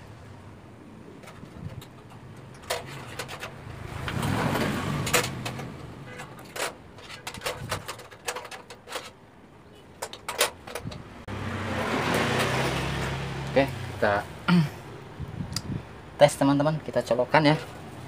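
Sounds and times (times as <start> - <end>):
vehicle passing: 3.0 - 6.1, 11.0 - 16.2.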